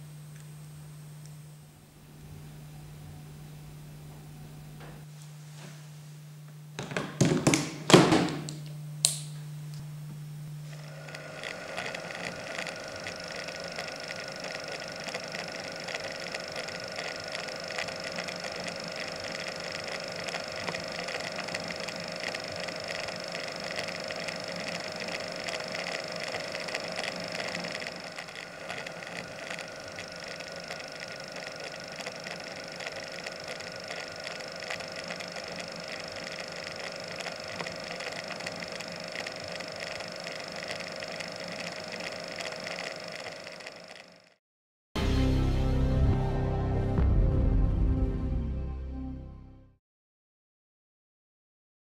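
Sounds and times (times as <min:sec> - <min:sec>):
film camera motor whirring: 0:10.5 - 0:44.4.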